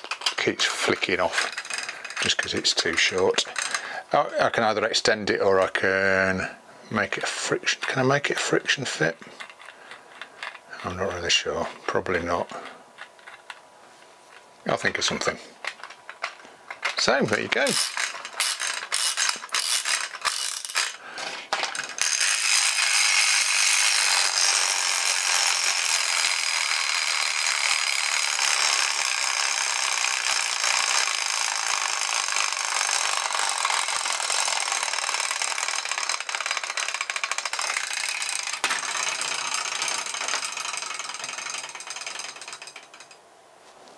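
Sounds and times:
ratchet clicks of winding: 0:00.0 - 0:04.0, 0:07.3 - 0:11.3, 0:15.7 - 0:43.2
clockwork gears whirring rattle: 0:00.0 - 0:04.8, 0:07.2 - 0:11.5, 0:14.3 - 0:43.2.

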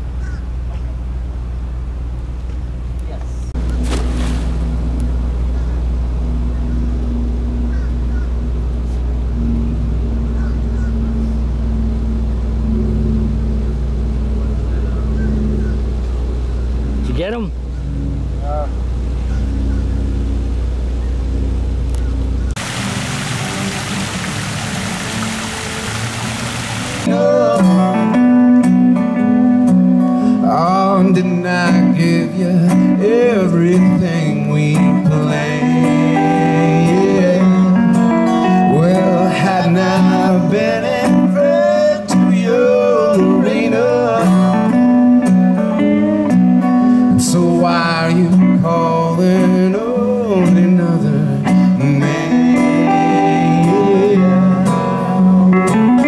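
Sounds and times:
electric guitar lead: 0:22.6 - 0:56.0
acoustic guitar strumming chords: 0:22.7 - 0:56.0.

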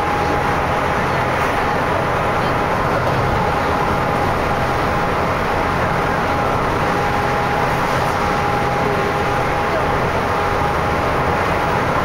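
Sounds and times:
road and engine noise in vehicle: 0:00.0 - 0:12.0.

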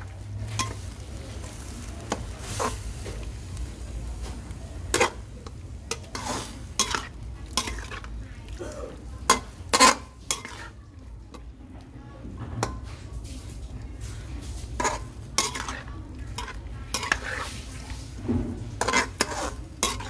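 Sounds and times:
metal ladle scraping a wok: 0:00.0 - 0:03.4, 0:04.8 - 0:08.2, 0:09.2 - 0:10.8, 0:14.1 - 0:20.0
light sizzle: 0:00.0 - 0:20.0.

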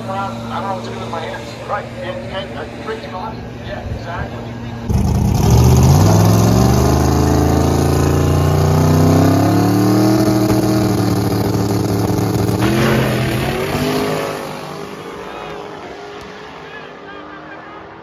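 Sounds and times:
drag car engine accelerating: 0:04.4 - 0:18.0.

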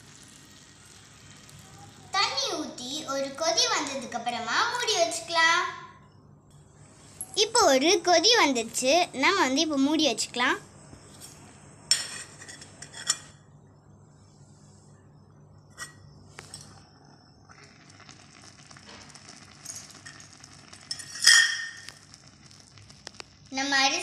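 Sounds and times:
rice and water sizzling: 0:00.0 - 0:05.3, 0:06.8 - 0:12.9, 0:16.3 - 0:24.0
metal lid clinking onto pot: 0:20.9 - 0:21.9
metal ringing clink on pot: 0:20.9 - 0:21.9.

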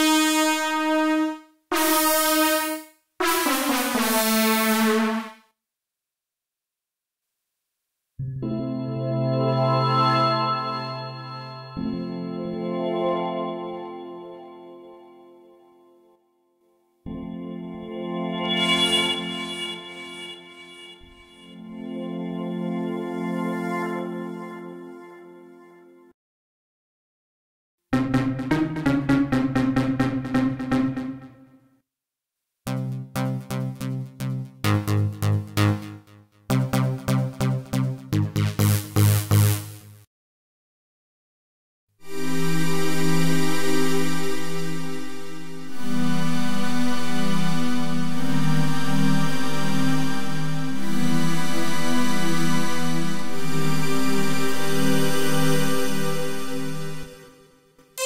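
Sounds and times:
synth brass notes: 0:00.0 - 0:05.5, 0:18.5 - 0:22.4, 0:27.9 - 0:31.6, 0:32.7 - 0:40.0.

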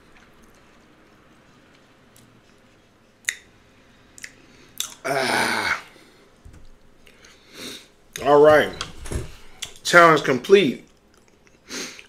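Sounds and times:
mouth clicks: 0:03.2 - 0:03.5.

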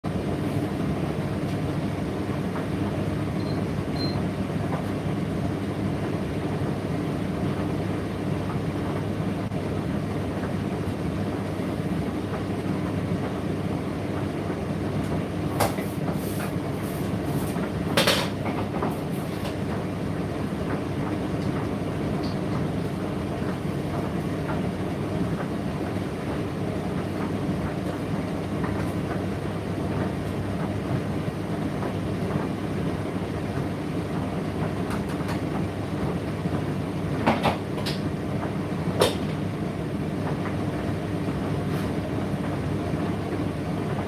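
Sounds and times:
tumble dryer rumbling: 0:00.0 - 0:44.0
knocks and clacks in dryer: 0:11.8 - 0:44.0.

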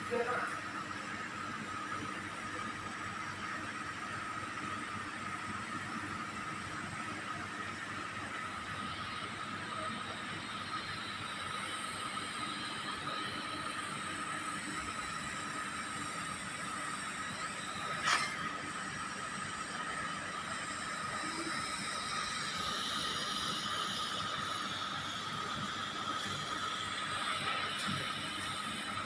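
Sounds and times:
faint steady whine: 0:00.0 - 0:29.0
welding arc hiss: 0:06.3 - 0:29.0.

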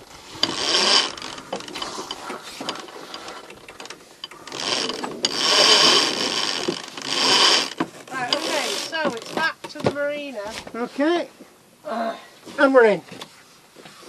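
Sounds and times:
winch ratcheting: 0:00.0 - 0:09.8.

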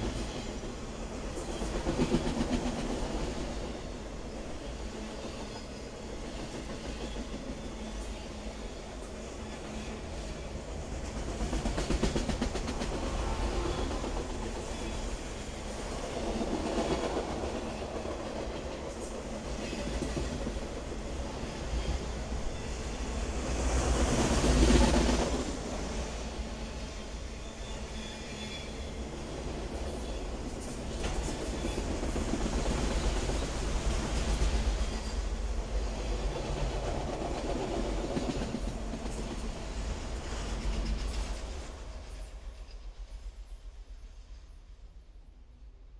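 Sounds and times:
clickety-clack over rail joints: 0:00.0 - 0:27.0, 0:27.9 - 0:43.6
train wheels rumbling on rail: 0:00.0 - 0:45.3.

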